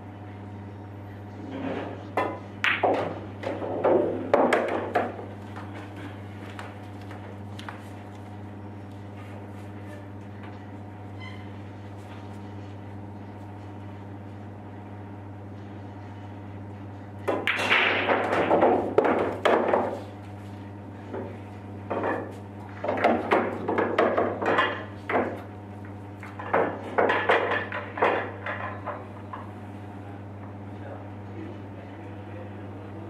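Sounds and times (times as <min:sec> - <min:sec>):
steady low hum: 0:00.0 - 0:33.0
pool balls clacking: 0:02.0 - 0:07.9, 0:17.2 - 0:20.2, 0:21.0 - 0:29.6.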